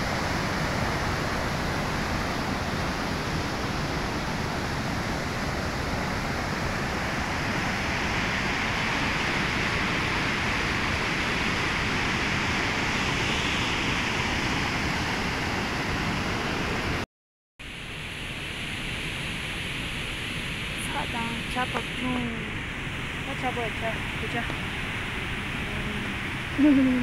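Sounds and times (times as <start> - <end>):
river rushing over boulders: 0.0 - 17.0.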